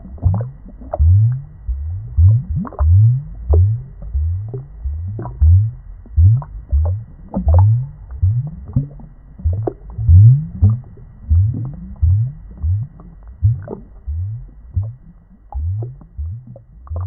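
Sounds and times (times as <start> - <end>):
deep gurgling bubbles in water: 0.0 - 17.0.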